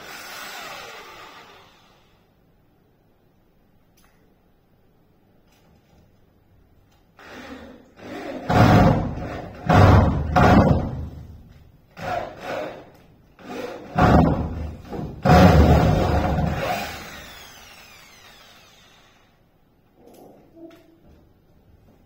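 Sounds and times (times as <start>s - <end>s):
heavy knocks on wooden door: 8.5s - 11.2s.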